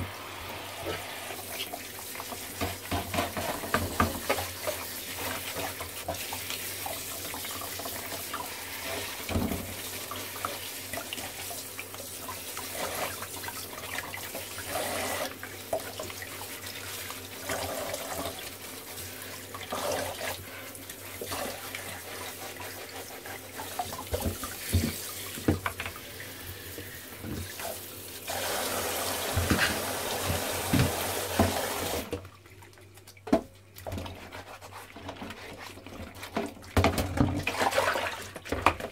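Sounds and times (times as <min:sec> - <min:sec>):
tap water running into bowl: 0:00.8 - 0:34.2
brush scrubbing: 0:16.4 - 0:25.4, 0:34.0 - 0:36.7.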